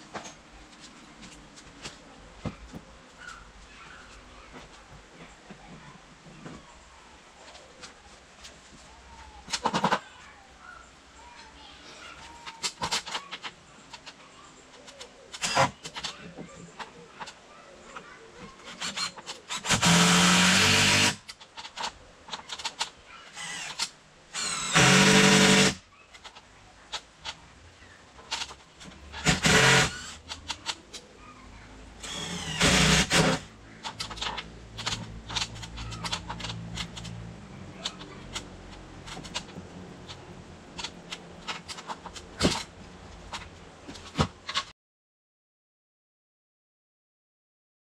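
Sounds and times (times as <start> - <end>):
handling knocks and clicks: 0.0 - 6.8, 28.1 - 31.2, 33.2 - 44.7
cordless drill driving into wood: 15.4 - 15.8, 18.8 - 21.3, 23.4 - 25.8, 29.2 - 30.2, 32.0 - 33.5.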